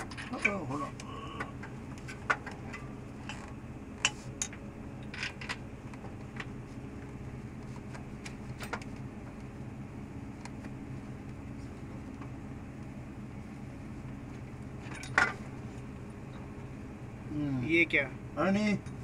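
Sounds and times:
metal tools clinking: 0.0 - 0.8
steady low hum: 0.0 - 19.0.

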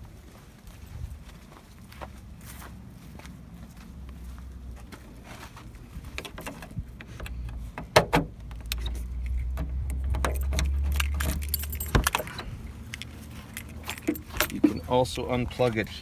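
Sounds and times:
car keys jangling: 8.6 - 14.9.

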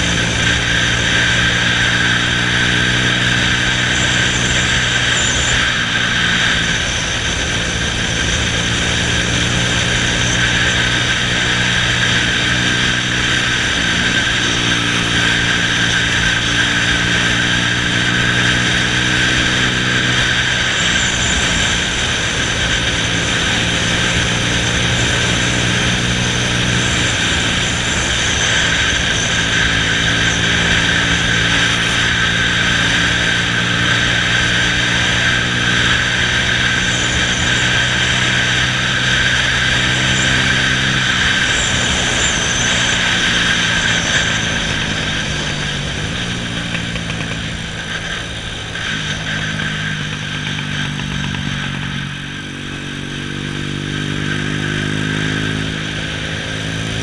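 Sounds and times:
motorcycle engine running: 0.0 - 57.0
wind and road noise: 0.0 - 57.0.

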